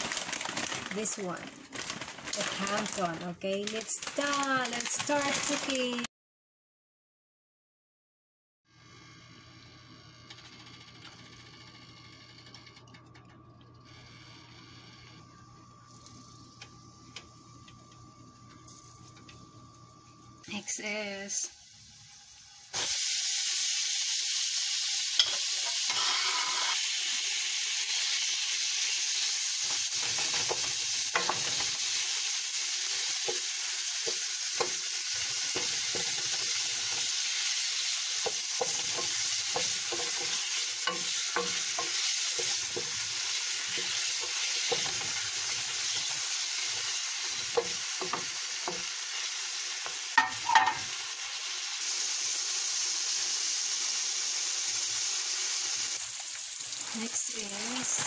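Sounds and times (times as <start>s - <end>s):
meat sizzling in hot oil: 20.7s - 58.0s.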